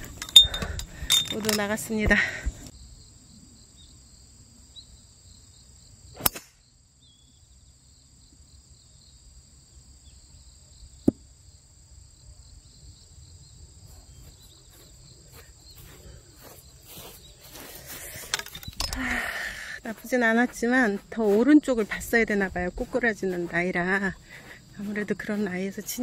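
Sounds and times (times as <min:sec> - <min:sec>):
high insect drone: 0:00.0 - 0:26.0
footsteps on grass: 0:13.8 - 0:26.0.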